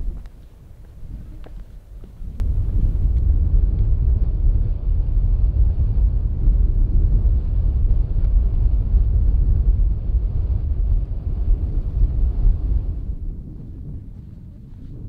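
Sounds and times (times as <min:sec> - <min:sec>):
wind buffeting microphone: 0:00.0 - 0:15.0.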